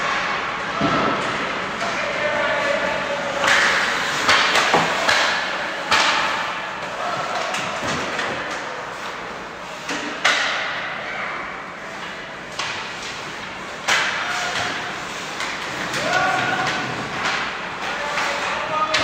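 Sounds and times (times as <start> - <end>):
noisy arena background: 0.0 - 19.0
puck and sticks knocking on boards: 3.3 - 9.2, 9.8 - 11.0, 12.0 - 19.0.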